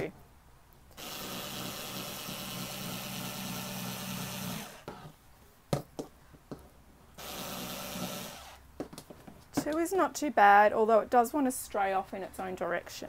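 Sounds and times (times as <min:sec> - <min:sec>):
cordless screwdriver whirring: 0:01.0 - 0:05.0, 0:07.2 - 0:08.6.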